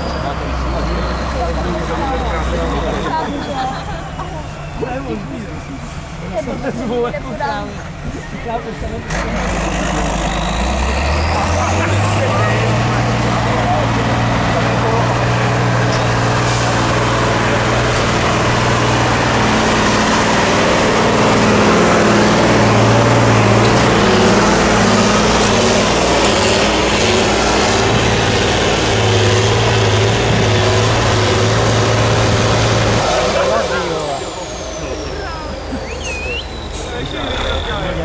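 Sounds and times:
truck diesel engine under load: 0.0 - 38.0.

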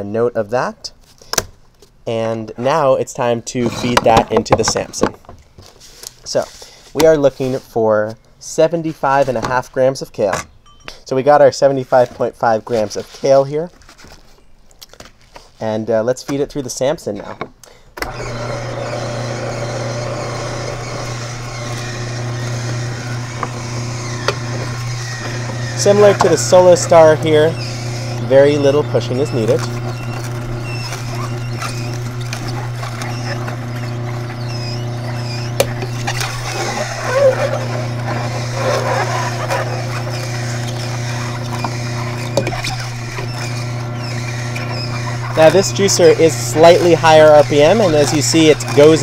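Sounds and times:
juicer motor humming: 18.0 - 49.0
auger crushing leaves crackling: 18.1 - 49.0.

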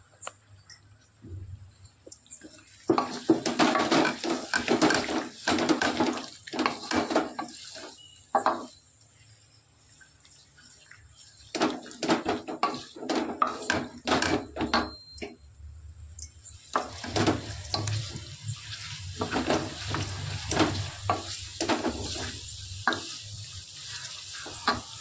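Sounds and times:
masala sizzling: 0.0 - 25.0
wooden spatula scraping metal pan: 11.5 - 14.8, 16.8 - 25.0.

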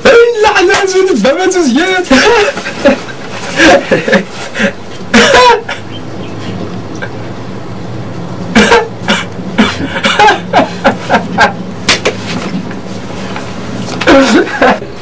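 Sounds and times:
steady low hum: 0.9 - 15.0.

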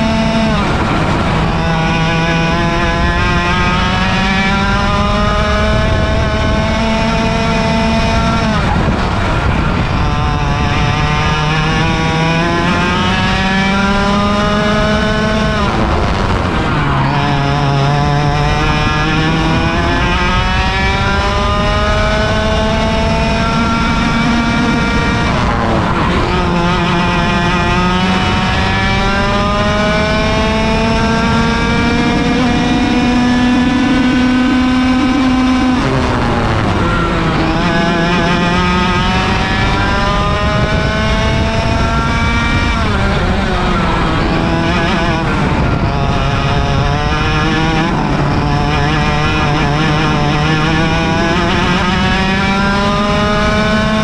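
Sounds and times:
kart engine racing: 0.0 - 54.0.

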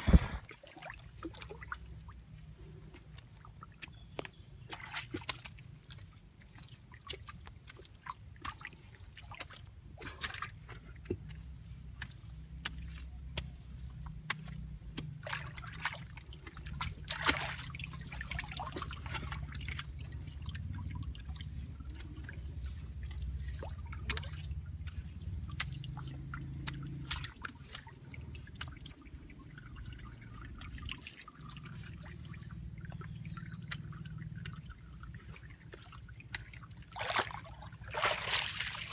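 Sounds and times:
low rumble: 0.0 - 0.5
muddy water splashing: 0.0 - 38.9.

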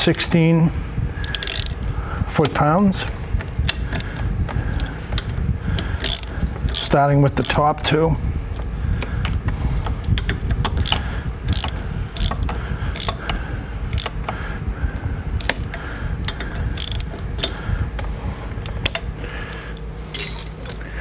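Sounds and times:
torque wrench ratchet clicks: 1.2 - 1.9, 3.7 - 7.6, 10.0 - 14.4, 15.4 - 19.1.

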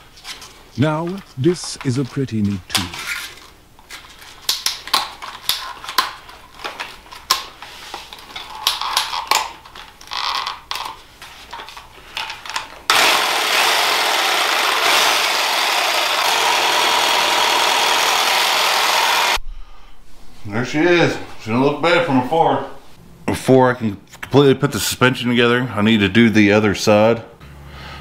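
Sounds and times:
reciprocating saw running: 12.9 - 19.4.

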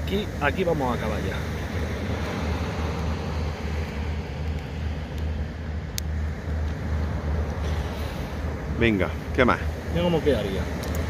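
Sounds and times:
hiss: 7.6 - 8.6.

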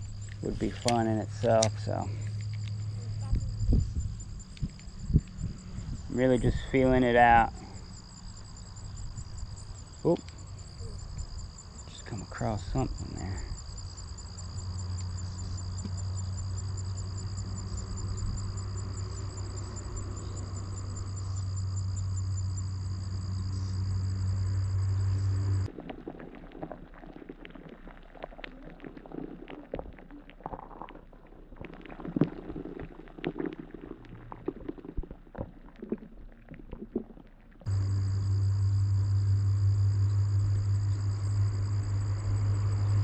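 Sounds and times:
crickets chirping: 0.0 - 25.7, 37.7 - 43.0
low hum: 0.0 - 25.8, 37.7 - 43.0
muffled underwater noise: 26.1 - 31.2.

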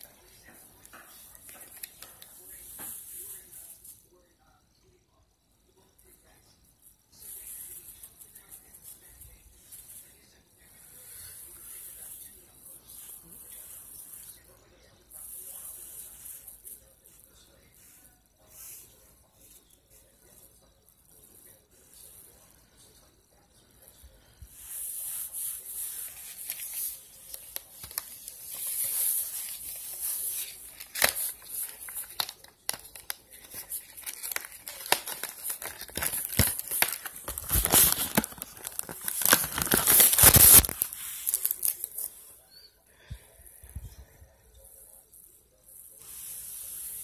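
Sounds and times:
plastic wrapping crinkling: 26.0 - 42.1.

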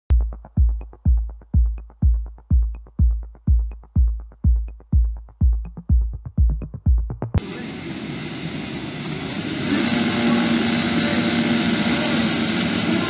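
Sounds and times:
light hi-hat ticks: 0.1 - 7.0
heavy kick drum: 0.1 - 7.4
electronic dance music: 0.1 - 7.5.

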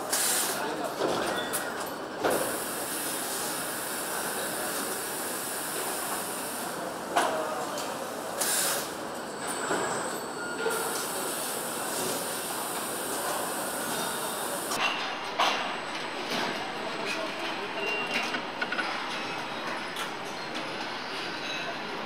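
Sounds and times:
steady hiss of machinery: 0.0 - 0.7, 2.3 - 9.1, 10.8 - 14.8.

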